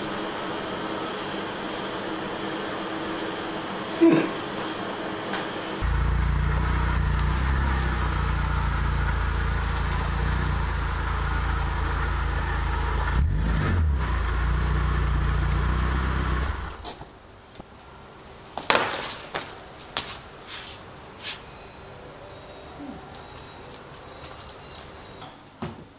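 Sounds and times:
car engine idling: 5.7 - 18.5.

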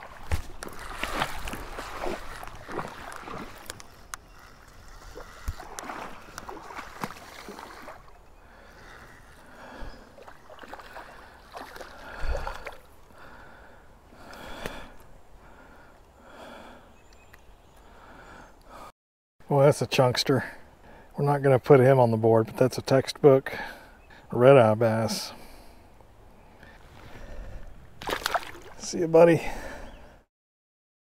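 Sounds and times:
water splashing in stream: 0.0 - 4.1, 4.8 - 8.2, 10.1 - 13.2, 28.0 - 28.9.

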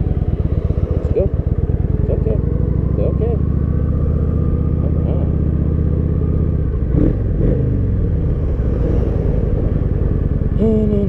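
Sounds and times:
motorcycle engine idling and pulling away: 0.0 - 11.0.

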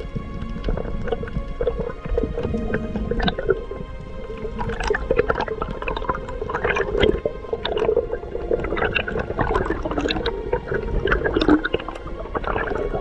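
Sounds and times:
underwater clicks crackling: 0.0 - 13.0
water noise: 0.0 - 13.0.

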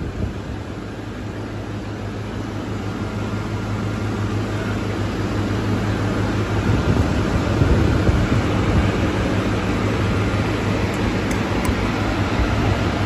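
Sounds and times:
motor hum: 0.0 - 13.0
wide rushing noise: 3.0 - 13.0.

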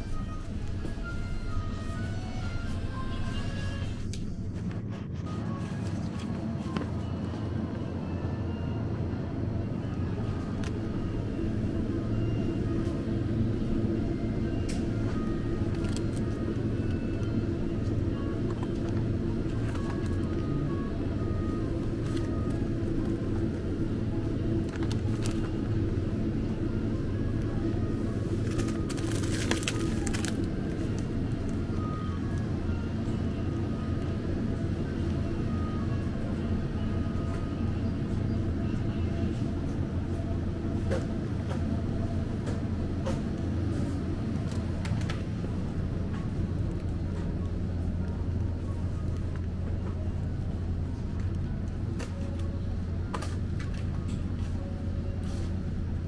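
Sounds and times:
faint music: 0.0 - 56.0
steady low hum: 0.0 - 56.0
packaging and basket rustling: 28.4 - 31.0.

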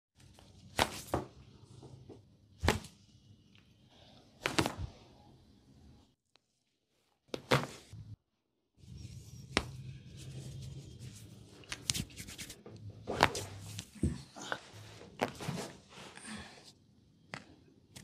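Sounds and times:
massage cracks and smacks: 0.7 - 1.2, 2.6 - 3.0, 4.4 - 5.0.

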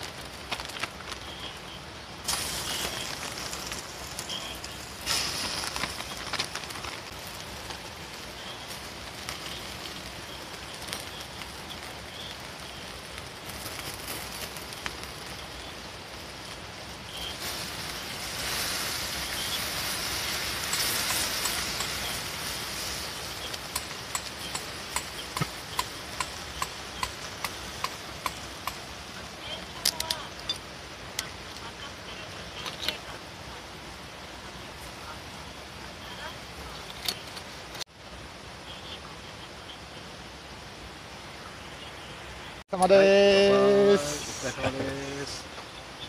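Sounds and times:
fire crackling and popping: 0.0 - 46.0
food sizzling in oil in a pan: 2.2 - 30.9.

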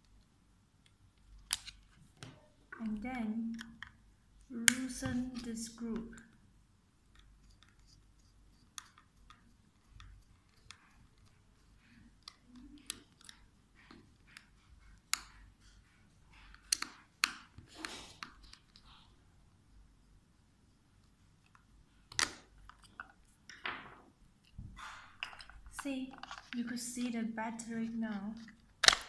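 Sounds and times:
screwdriver clicks and scrapes: 25.2 - 26.6.

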